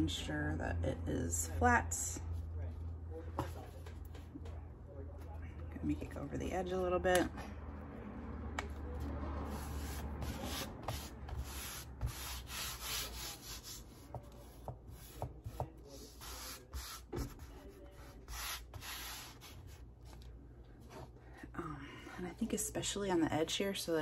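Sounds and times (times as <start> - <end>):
hands smoothing paper: 9.0 - 21.2.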